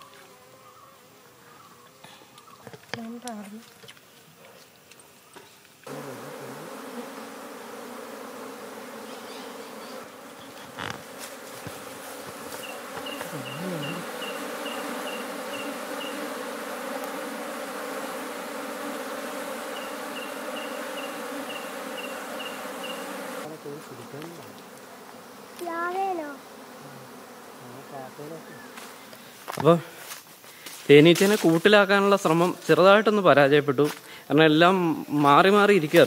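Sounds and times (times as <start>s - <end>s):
bees buzzing: 5.8s - 29.5s.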